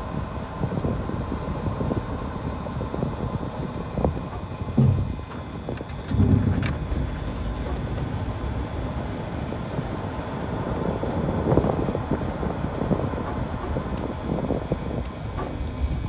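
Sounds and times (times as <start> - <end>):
road noise rumble: 0.0 - 16.0
light knocks and rattles: 4.3 - 9.0.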